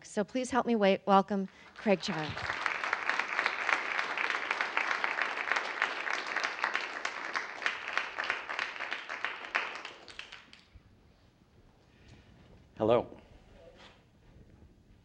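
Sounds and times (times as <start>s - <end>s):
audience applauding: 1.5s - 10.7s.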